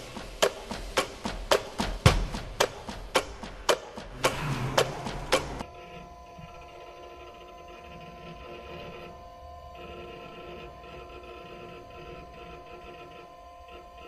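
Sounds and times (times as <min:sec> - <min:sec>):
electronic hum of held tones: 0:05.6 - 0:14.0.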